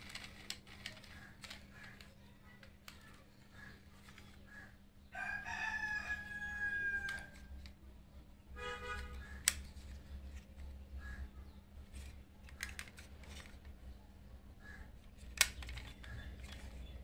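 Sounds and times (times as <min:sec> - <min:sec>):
rooster crowing: 0:05.1 - 0:07.4.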